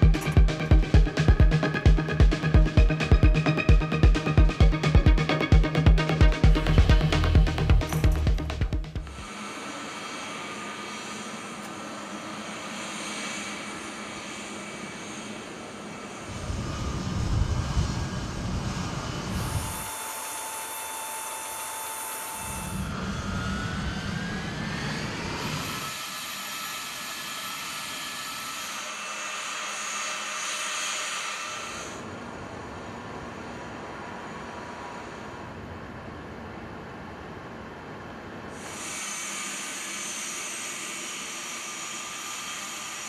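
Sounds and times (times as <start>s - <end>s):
rising engine whine: 0.0s - 19.9s, 22.2s - 26.0s
jet engines running: 0.0s - 20.0s, 22.2s - 43.0s.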